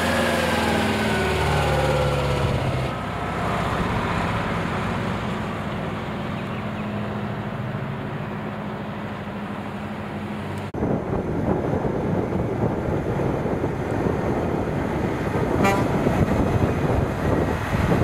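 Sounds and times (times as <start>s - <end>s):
truck diesel engine driving away: 0.0s - 10.7s
truck engine and tyres passing: 0.0s - 18.0s
truck horn toot: 15.6s - 16.2s.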